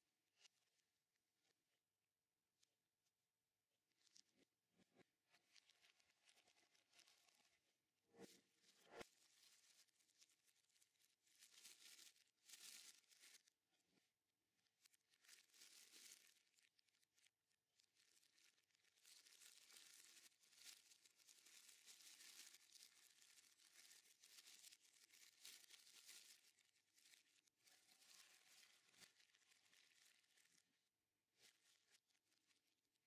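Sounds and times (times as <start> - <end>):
plastic bag crinkling: 19.1 - 26.3.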